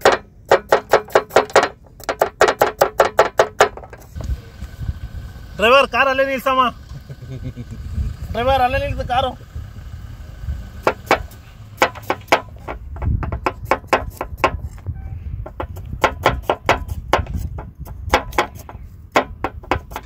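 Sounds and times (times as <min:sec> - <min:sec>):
sharp clicks and knocks: 0:00.0 - 0:04.3, 0:10.8 - 0:20.0
low rumble: 0:04.1 - 0:11.8.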